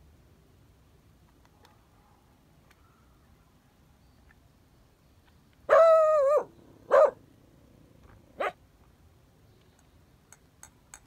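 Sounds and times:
tin toys clicking: 9.8 - 11.0.

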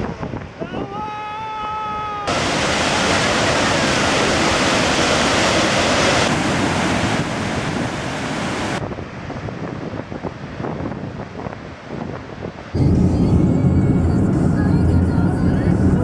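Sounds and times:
waterfall rushing: 2.2 - 8.8.

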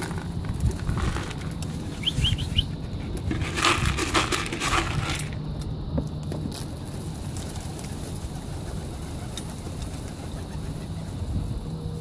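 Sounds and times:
pigeon wings flapping: 7.0 - 11.1.

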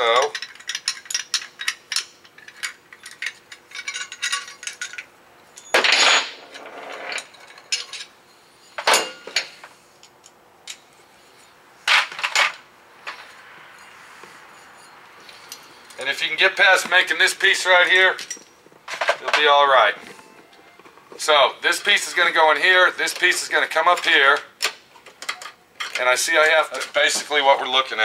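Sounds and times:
metal tool clicking and clinking: 0.1 - 5.8, 7.1 - 8.1, 24.0 - 26.0
metal tube scraping: 13.1 - 16.0.

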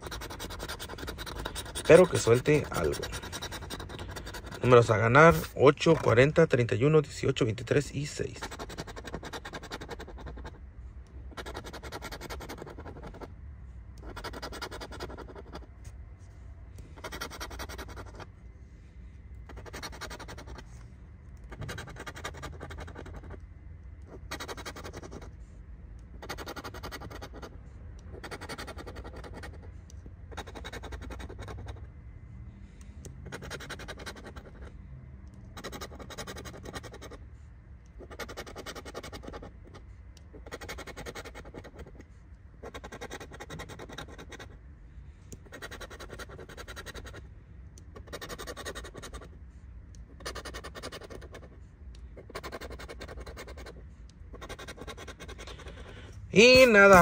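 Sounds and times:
metal tool scraping lottery ticket: 0.0 - 10.5, 11.3 - 13.3, 14.0 - 15.7, 17.0 - 18.2, 19.5 - 20.6, 21.4 - 23.4, 24.2 - 25.3, 26.2 - 27.5, 28.2 - 29.6, 30.3 - 31.8, 33.2 - 34.7, 35.6 - 37.2, 38.0 - 39.8, 40.4 - 42.0, 42.6 - 44.5, 45.4 - 47.2, 48.0 - 49.3, 50.2 - 51.5, 52.2 - 57.0.

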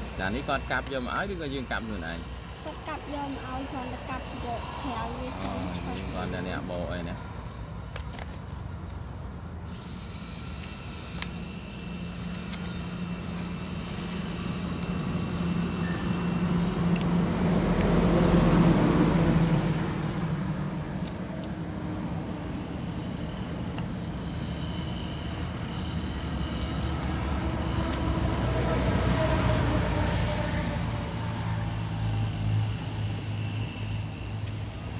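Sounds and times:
vehicle engine passing by: 15.0 - 22.4, 26.0 - 34.5.

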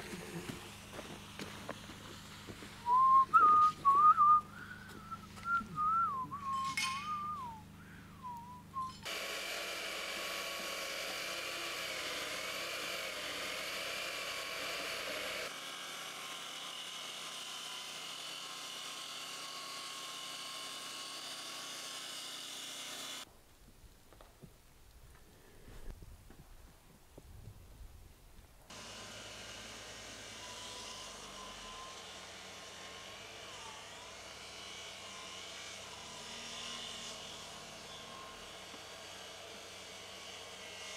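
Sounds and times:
circular saw cutting wood: 0.0 - 23.3, 28.7 - 40.9
person whistling a tune: 2.8 - 9.0.

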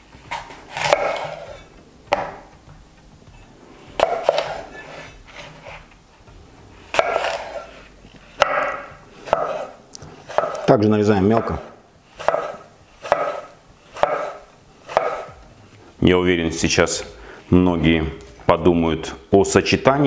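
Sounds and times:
knife crunching through apple: 0.2 - 1.7, 4.0 - 5.9, 6.9 - 15.4
knife knocking on wooden board: 2.1 - 2.8.

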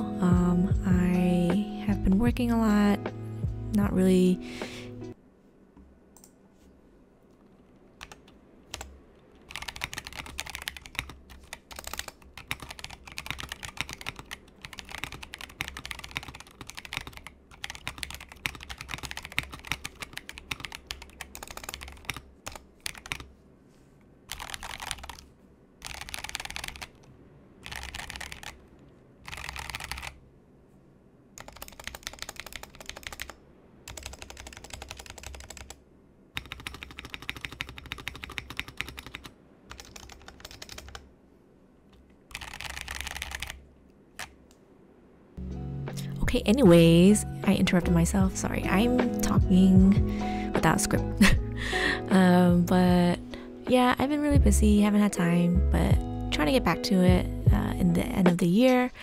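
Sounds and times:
typing on mechanical keyboard: 8.0 - 23.3, 24.3 - 30.2, 31.4 - 35.8, 36.4 - 41.1, 42.3 - 43.6.

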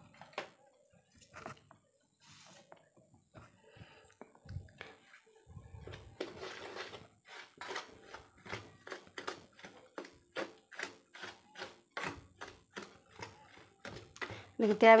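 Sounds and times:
spoon scraping steel bowl: 5.9 - 15.0.

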